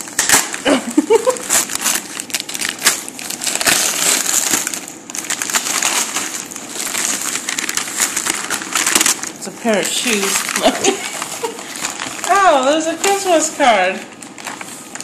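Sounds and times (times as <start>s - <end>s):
paper wrapping torn and crumpled: 0.0s - 15.0s.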